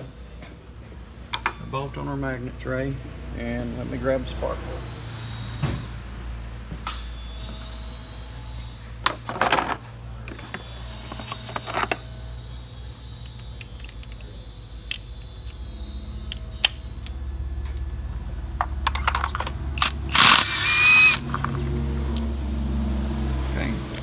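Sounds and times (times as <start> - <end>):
cordless impact gun whine: 19.8 - 21.5.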